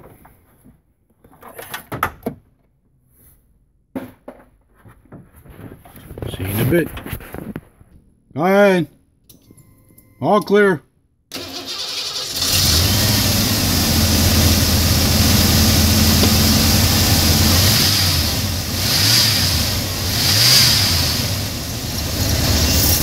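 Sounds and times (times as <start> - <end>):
engine revving: 11.3 - 23.0
truck engine starting: 11.3 - 23.0.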